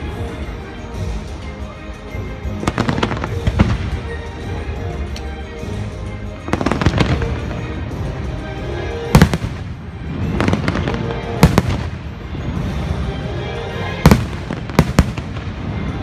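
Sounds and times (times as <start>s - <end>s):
fireworks show music: 0.0s - 16.0s
fireworks bangs: 9.1s - 12.1s, 14.0s - 16.0s.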